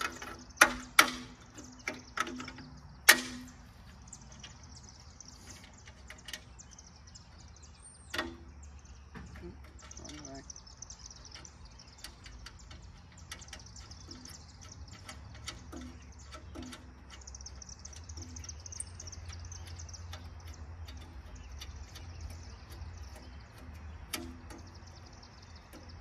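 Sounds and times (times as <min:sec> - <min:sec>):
birds chirping: 0:00.0 - 0:26.0
hand tools tapping on metal: 0:00.0 - 0:26.0.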